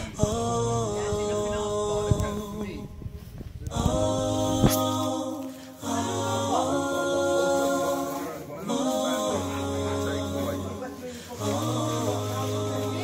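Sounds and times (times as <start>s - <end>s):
a cappella singing: 0.0s - 13.0s.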